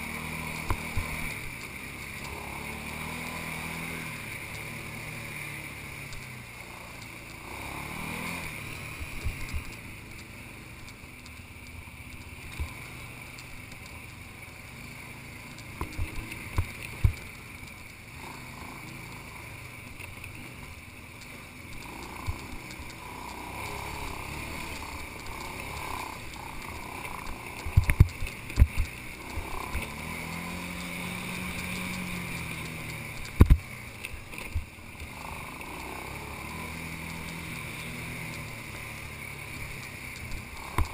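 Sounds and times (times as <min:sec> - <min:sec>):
atv engine running: 0:00.0 - 0:40.9
sharp knocks over bumps: 0:31.3 - 0:34.7.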